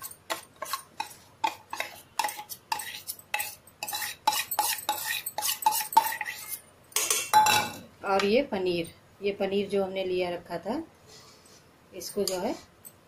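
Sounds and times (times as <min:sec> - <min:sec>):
spoon clinking on steel bowl: 0:00.0 - 0:08.3.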